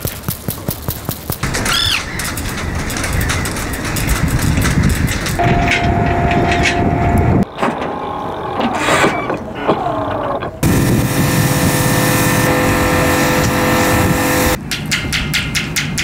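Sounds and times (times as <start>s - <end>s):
steady machine hum: 5.4s - 7.4s, 10.6s - 14.6s
steady motor drone: 10.6s - 14.6s.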